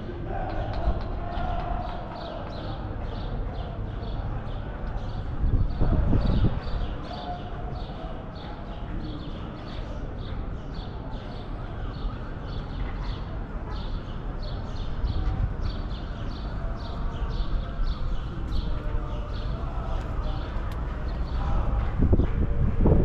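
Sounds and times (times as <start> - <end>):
outdoor ambience: 0.0 - 23.0.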